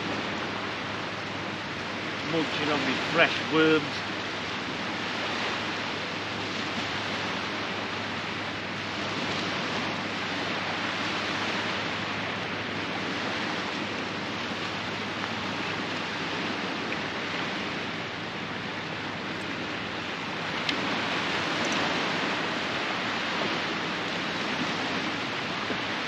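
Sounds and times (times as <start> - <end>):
surf washing on a beach: 0.0 - 26.0.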